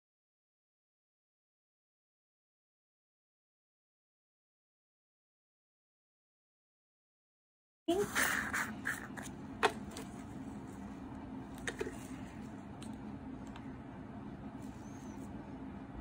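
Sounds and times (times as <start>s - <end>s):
steady low hum: 7.9s - 16.0s.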